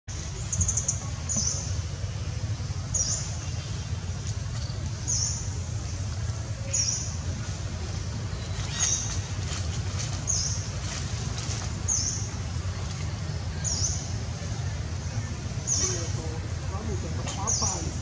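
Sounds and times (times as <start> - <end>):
steady low rumble: 0.1 - 18.0
bird chirping: 8.3 - 9.3.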